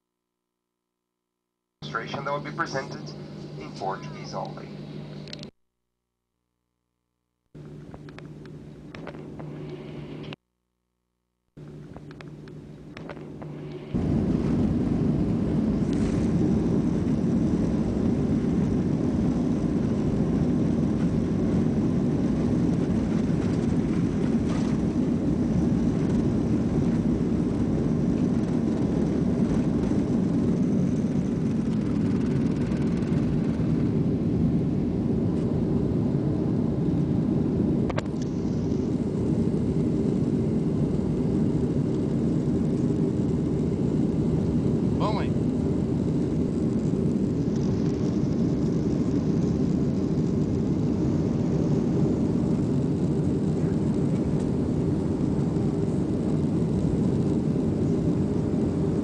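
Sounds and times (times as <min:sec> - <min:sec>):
jet engines rumbling in cabin: 0:01.8 - 0:05.6, 0:07.6 - 0:10.4, 0:11.6 - 0:59.0.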